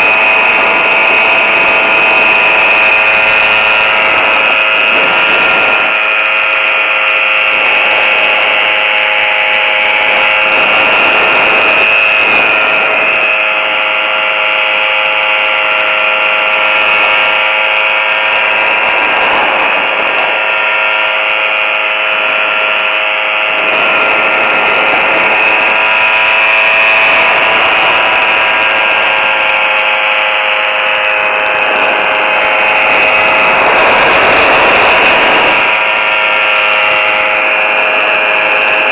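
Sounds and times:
high-pitched engine drone: 0.0 - 38.9
wind rushing over microphone: 0.0 - 38.9.

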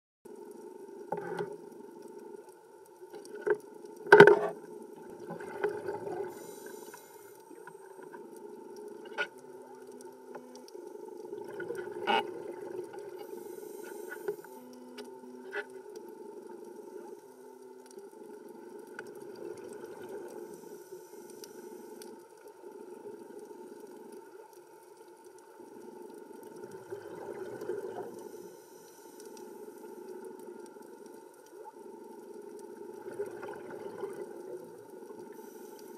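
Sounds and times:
exhaled bubbles: 4.4 - 6.7, 11.2 - 13.3, 26.6 - 28.2, 32.8 - 35.4
regulator breathing: 13.2 - 14.9.

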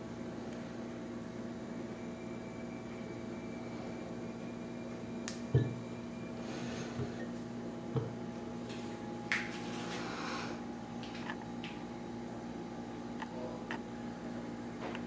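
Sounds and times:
steady background hum: 0.0 - 15.0
glass decanter thumps on cloth: 5.5 - 5.8, 8.0 - 8.2.

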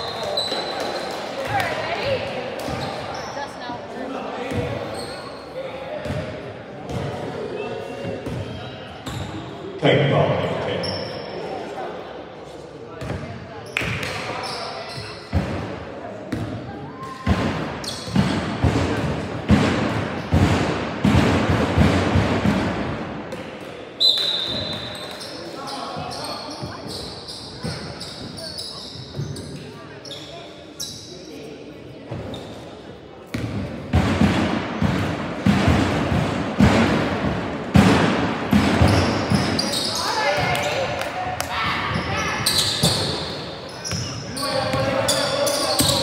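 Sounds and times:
loud thuds echoing in a gymnasium: 0.0 - 11.6, 12.8 - 31.2, 31.9 - 46.0
heavy echoing thuds: 17.2 - 23.4, 33.4 - 39.7.

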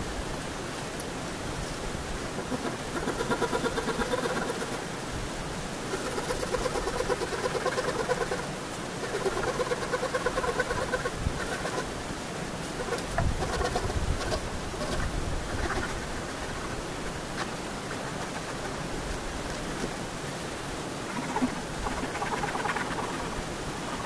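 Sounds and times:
steady hiss: 0.0 - 24.0
bird trilling: 21.1 - 24.0.

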